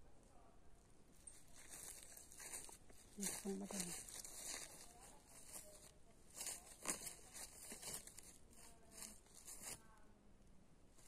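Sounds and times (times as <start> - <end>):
footsteps crunching through dry leaves: 1.2 - 9.8.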